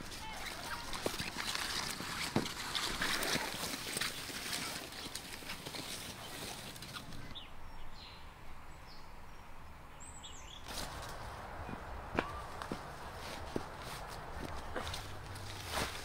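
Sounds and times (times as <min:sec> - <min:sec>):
dry grass rustling underfoot: 0:00.0 - 0:07.4, 0:10.6 - 0:16.0.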